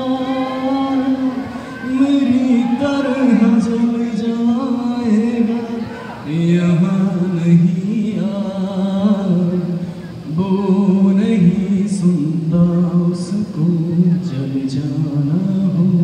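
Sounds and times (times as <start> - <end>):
man singing over loudspeakers: 0.0 - 16.0.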